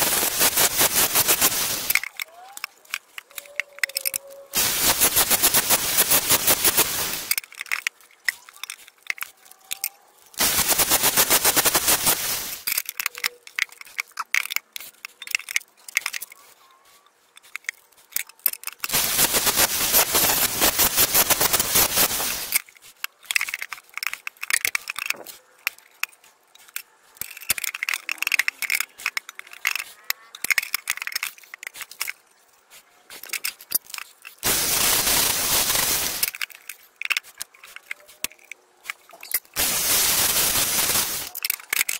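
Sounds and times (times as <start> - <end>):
scraping and ticking: 0.0 - 41.9.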